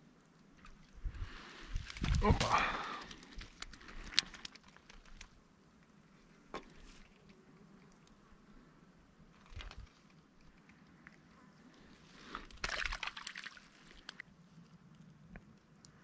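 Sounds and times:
water splashing and sloshing: 0:12.4 - 0:14.2.

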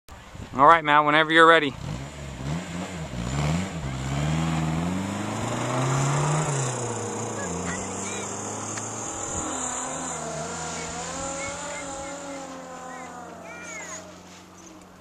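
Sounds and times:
tow winch engine running: 0:03.9 - 0:15.0.

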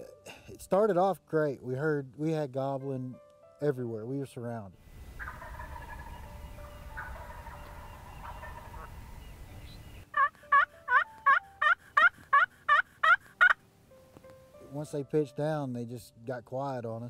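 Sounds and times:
distant bird calls: 0:04.9 - 0:13.6
turkey call yelping: 0:05.2 - 0:13.6.

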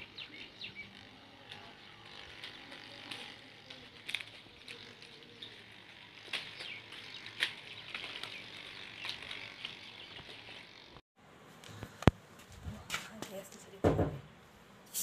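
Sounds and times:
small birds chirping: 0:00.0 - 0:11.0.

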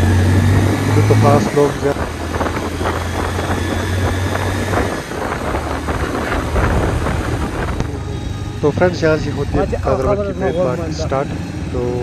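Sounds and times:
motorcycle engine running: 0:00.0 - 0:12.0
wind buffeting microphone: 0:00.1 - 0:08.0.

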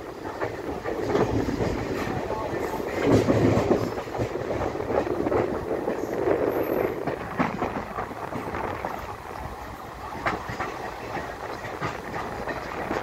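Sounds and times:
train wheels rumbling on rail: 0:00.0 - 0:13.0
clicks over rail joints: 0:10.1 - 0:13.0.

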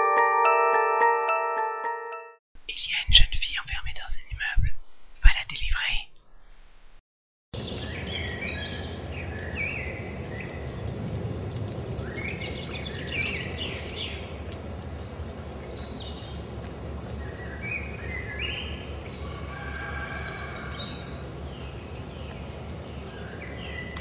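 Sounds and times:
birds chirping and singing: 0:07.6 - 0:11.3, 0:12.0 - 0:16.4, 0:17.1 - 0:19.4.

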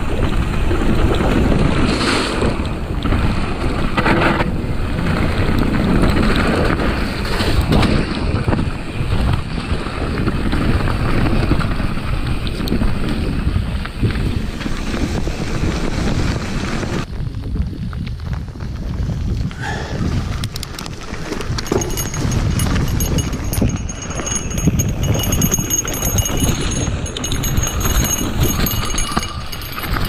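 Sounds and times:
bike tyre roar on gravel: 0:00.0 - 0:30.0
wind rushing over microphone: 0:00.0 - 0:30.0
mountain bike rattling knocks: 0:20.6 - 0:30.0.

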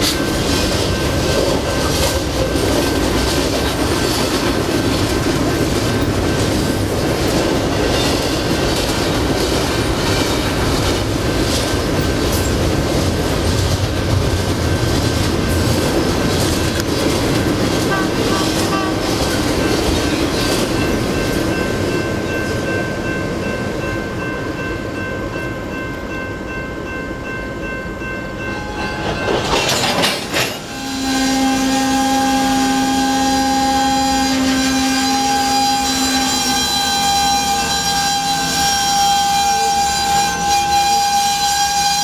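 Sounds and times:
freight cars rumbling: 0:00.0 - 0:23.2
steady shrill multi-tone sound: 0:27.2 - 0:42.0.

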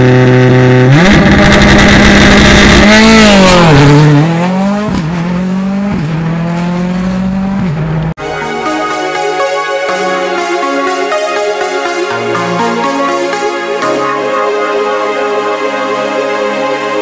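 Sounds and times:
rally car engine revving: 0:00.0 - 0:08.1
music: 0:08.2 - 0:17.0.

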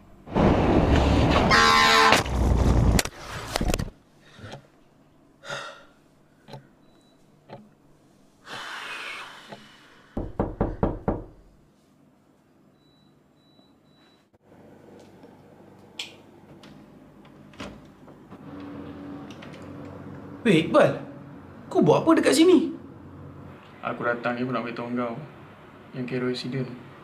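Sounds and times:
crash noise: 0:00.3 - 0:03.9
knocks on a door: 0:10.2 - 0:11.4.

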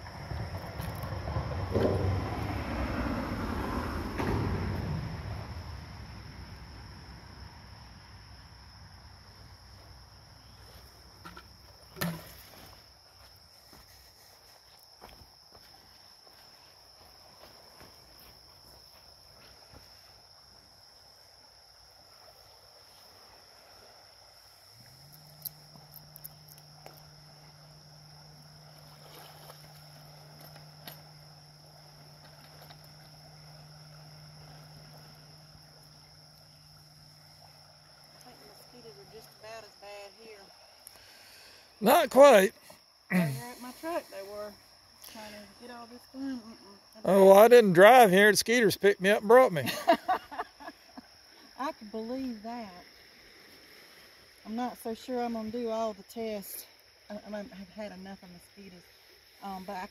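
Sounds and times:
high-pitched insect drone: 0:04.6 - 0:59.9
bucket splashing into water: 0:11.2 - 0:12.7
steady low hum: 0:24.6 - 0:42.4.

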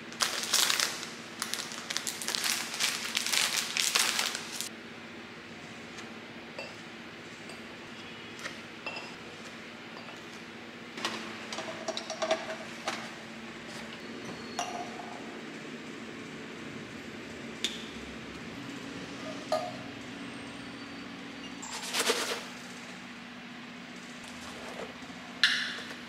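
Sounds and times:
glass bottles clinking: 0:08.9 - 0:09.2, 0:14.6 - 0:15.0, 0:19.4 - 0:19.8.

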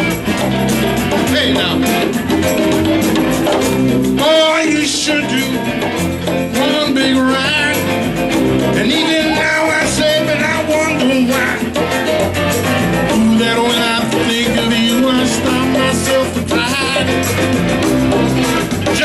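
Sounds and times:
congas: 0:00.0 - 0:19.0
drum kit: 0:00.0 - 0:19.0
electric guitars: 0:00.0 - 0:19.0
person singing: 0:06.4 - 0:12.0, 0:13.0 - 0:17.6.

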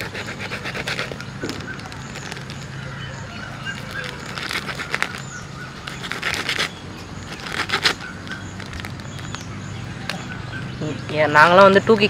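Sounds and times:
sweet wrapper crinkling: 0:01.1 - 0:02.9, 0:03.5 - 0:10.2.

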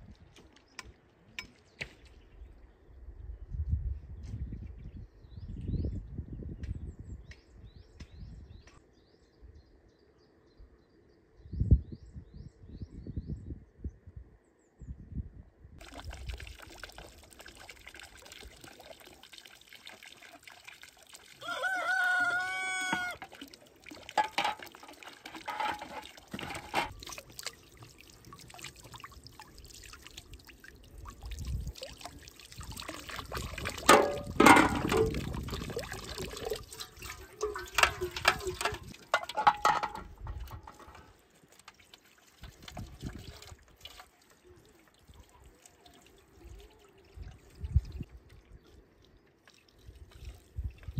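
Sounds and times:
rooster crowing: 0:21.4 - 0:23.2
knocks and clatter: 0:24.2 - 0:26.9, 0:33.9 - 0:35.2, 0:37.4 - 0:41.1.

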